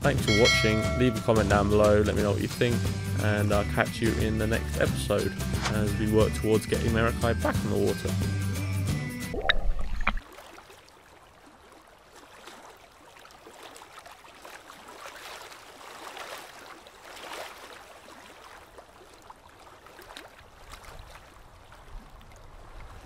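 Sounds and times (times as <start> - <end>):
small waves lapping: 9.4 - 23.0.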